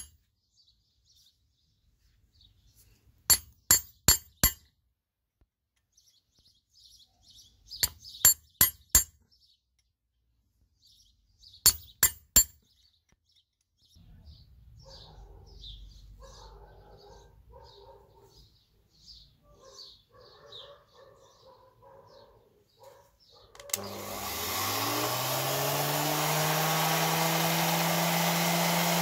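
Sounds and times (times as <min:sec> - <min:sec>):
birds chirping: 0:00.0 - 0:04.6, 0:05.8 - 0:25.0
hammer striking metal punch: 0:03.3 - 0:04.7, 0:07.8 - 0:09.2, 0:11.7 - 0:12.6.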